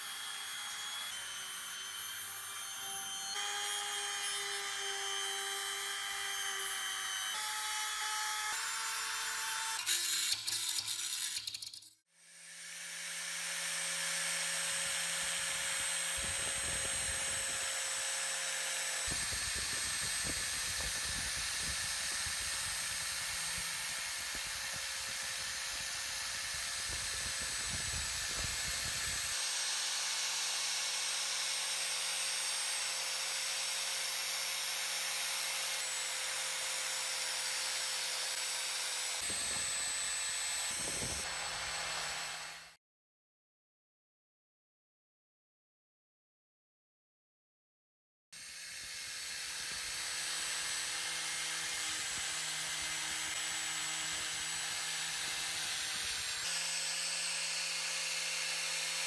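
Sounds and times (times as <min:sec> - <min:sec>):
power grinder motor whining: 0:00.0 - 0:42.8, 0:48.4 - 0:59.0
grinding wheel on metal: 0:09.8 - 0:12.0.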